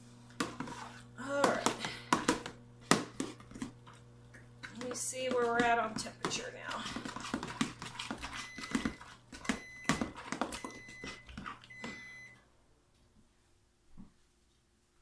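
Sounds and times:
metal spoon scraping soap paste: 0.4 - 1.1, 4.7 - 11.6.

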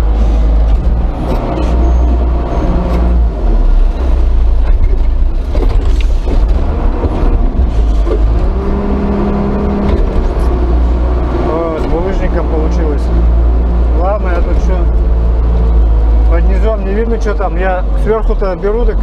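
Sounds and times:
machine knocks and clanks: 0.0 - 8.8, 9.7 - 10.6
loader diesel engine running: 0.0 - 19.0.

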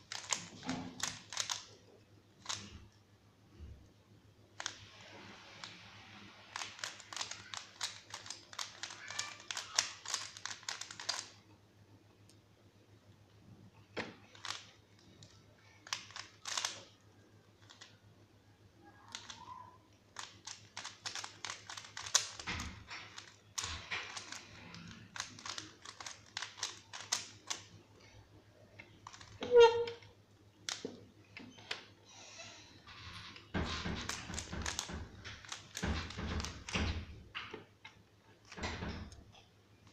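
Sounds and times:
puzzle cube clicking as turned: 0.0 - 1.8, 2.4 - 2.9, 4.6 - 4.8, 6.4 - 11.4, 14.1 - 17.0, 17.6 - 17.9, 19.0 - 19.5, 20.1 - 27.7, 29.0 - 30.1, 30.7 - 30.9, 34.0 - 36.8.

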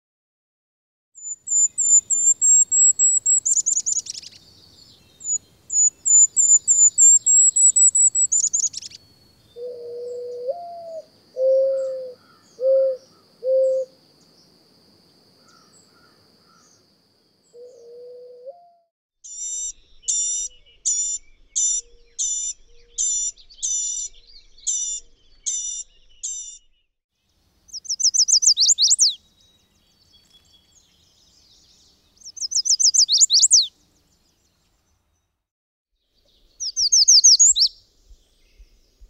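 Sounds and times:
high thin bird song: 1.2 - 14.6, 15.4 - 26.9, 27.6 - 35.4, 36.0 - 39.0
faint high insect hum: 1.2 - 18.4, 27.3 - 35.3, 36.2 - 39.0
dove cooing: 9.6 - 14.0, 17.6 - 18.7.

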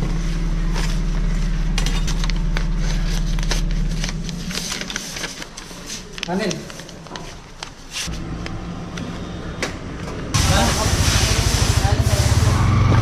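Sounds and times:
low hum: 0.0 - 5.4
paper rustling and crinkling: 0.2 - 8.1.

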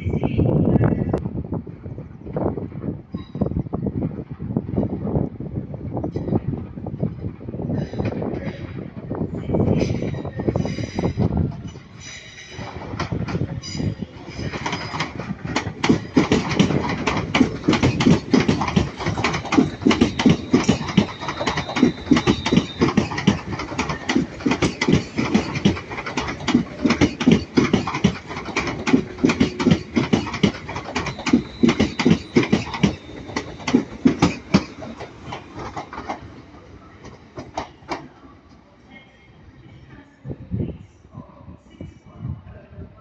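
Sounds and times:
train wheels clattering over rails: 9.8 - 38.2.

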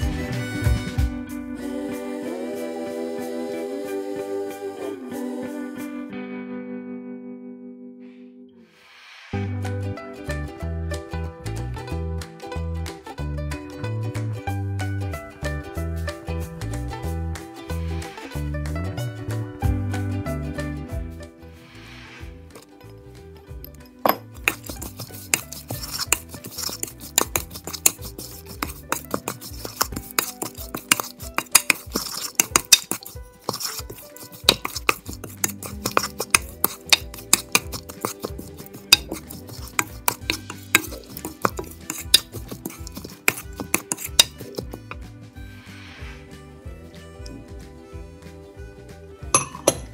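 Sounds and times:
wooden spoon scraping ceramic bowl: 24.1 - 45.0.

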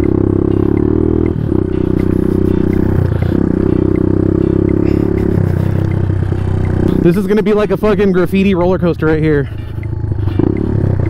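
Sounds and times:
motorcycle engine running: 0.0 - 11.0.

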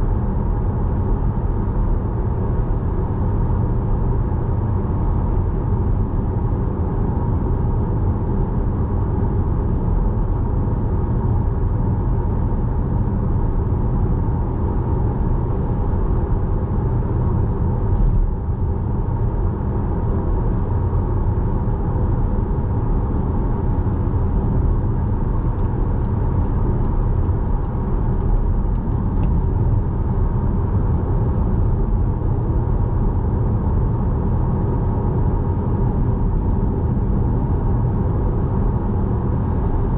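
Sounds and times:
car engine and tyre rumble: 0.0 - 39.9.

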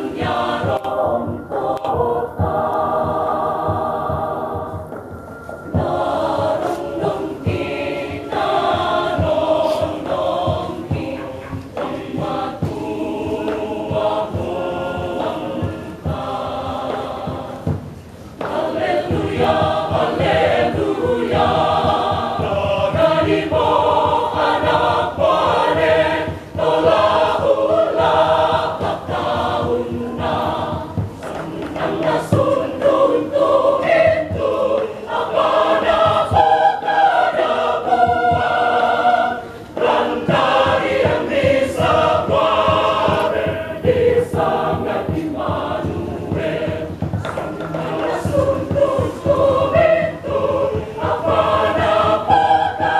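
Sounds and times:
mixed choir singing in harmony: 0.0 - 52.9.

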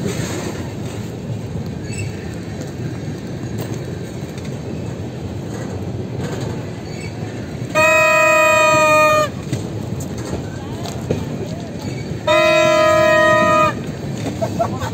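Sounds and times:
freight train wheels rumbling: 0.0 - 14.9
locomotive air horn: 7.7 - 9.6, 12.2 - 14.0.

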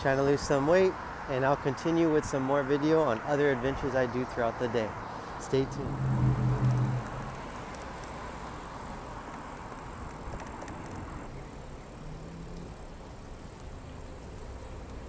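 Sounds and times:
passing traffic: 0.0 - 15.0
wind rushing: 5.3 - 7.7.

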